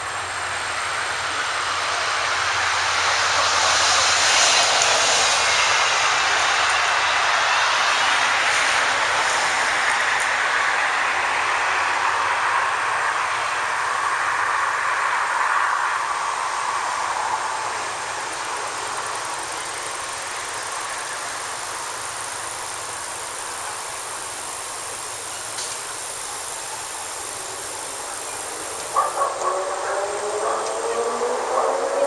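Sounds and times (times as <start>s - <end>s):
distant traffic hum: 0.0s - 32.0s
vehicle passing: 23.6s - 32.0s.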